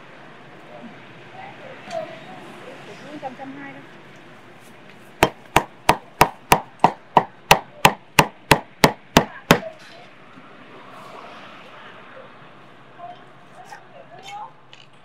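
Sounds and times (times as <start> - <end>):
meat cleaver chopping on wooden block: 5.2 - 9.6.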